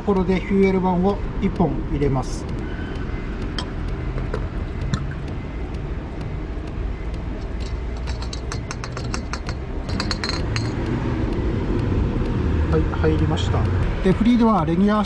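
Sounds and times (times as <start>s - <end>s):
steady low rumble: 0.0s - 15.0s
bottle clinking against filler neck: 7.6s - 10.8s.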